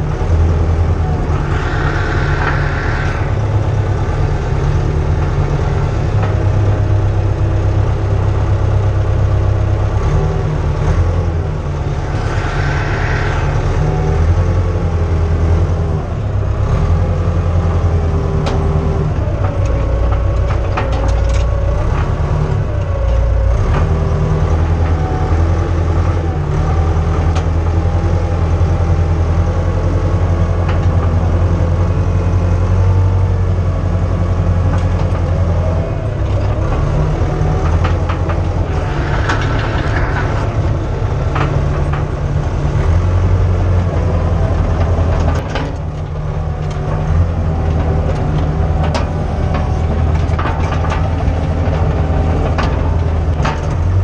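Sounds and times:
bulldozer diesel engine running: 0.0 - 54.0
clanks and knocks: 18.4 - 24.0, 34.6 - 54.0.

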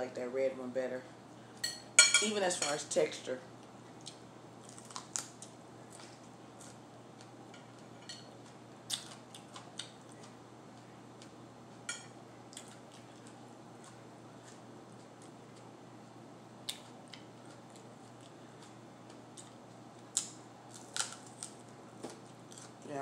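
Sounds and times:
crunchy chewing: 4.0 - 11.4, 12.5 - 15.7, 16.6 - 22.8.

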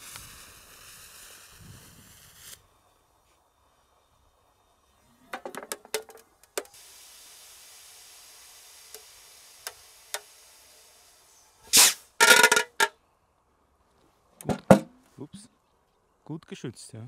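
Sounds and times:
firework cracks: 0.0 - 2.6, 5.4 - 10.9, 11.6 - 12.9
muffled firework hiss: 0.0 - 14.4
pops: 11.7 - 12.9.

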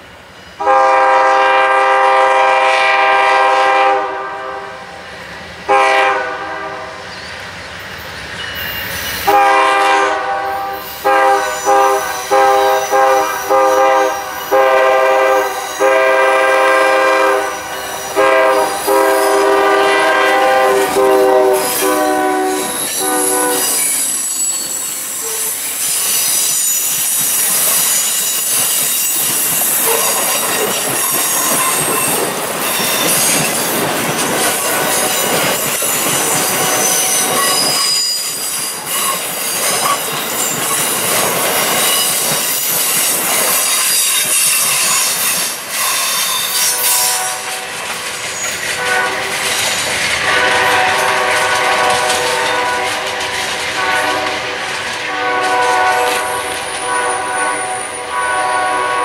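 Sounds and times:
steel wheels squealing on rails: 0.0 - 1.6, 6.6 - 59.0
train cars rushing past: 0.0 - 59.0
train air horn blasts: 0.6 - 5.0, 5.7 - 7.0, 9.2 - 25.6, 29.8 - 30.7, 44.0 - 47.8, 48.7 - 49.5, 50.2 - 59.0.

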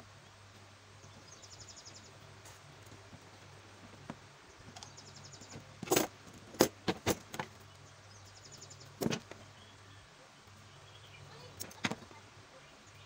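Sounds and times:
steady low hum: 0.0 - 13.0
faint high chirping: 1.0 - 2.3, 7.6 - 13.0.

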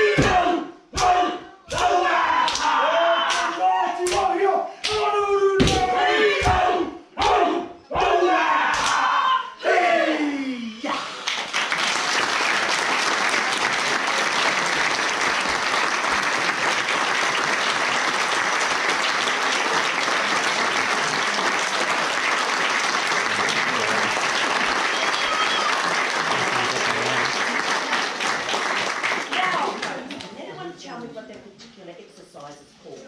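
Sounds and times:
shouted call: 0.0 - 10.6, 23.3 - 27.3
audience applauding: 11.1 - 30.4.

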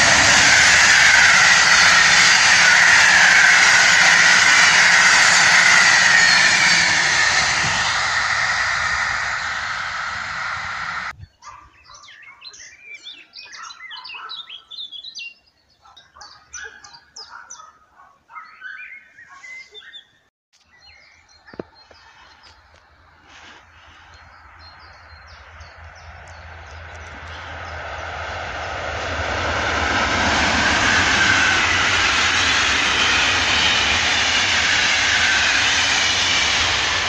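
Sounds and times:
electric locomotive rumble: 0.0 - 11.2, 23.0 - 37.0
small birds chirping and singing: 11.2 - 27.8.

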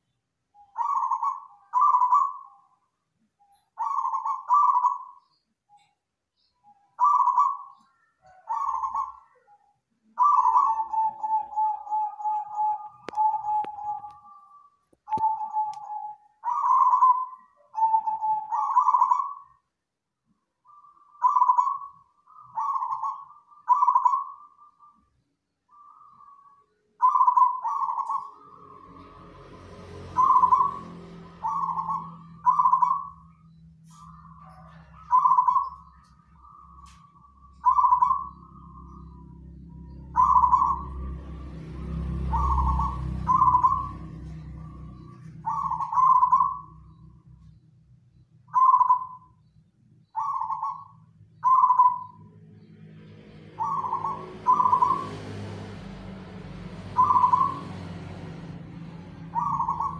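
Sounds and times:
dove cooing: 0.7 - 2.6, 3.8 - 5.2, 7.0 - 9.6, 10.2 - 19.6, 21.1 - 24.7, 27.0 - 28.6, 30.2 - 41.1, 42.3 - 47.0, 48.5 - 49.3, 50.2 - 52.2, 53.6 - 55.6, 56.9 - 57.8, 59.2 - 59.9.

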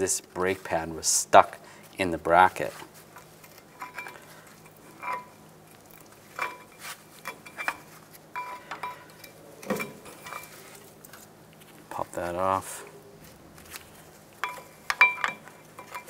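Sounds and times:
screwdriver clinking and scraping metal: 3.1 - 5.4, 6.3 - 10.7, 14.4 - 16.0.

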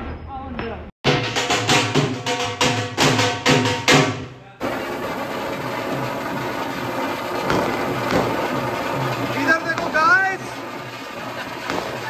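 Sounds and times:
dance music with drum beat: 1.0 - 12.0
fountain firework hissing: 4.6 - 12.0.

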